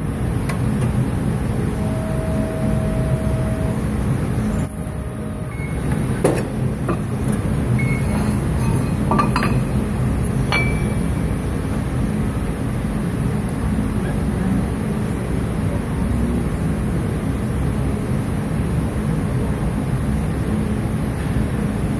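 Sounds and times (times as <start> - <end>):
low machine hum: 0.0 - 21.9
steel plate clinking on metal: 6.9 - 11.4.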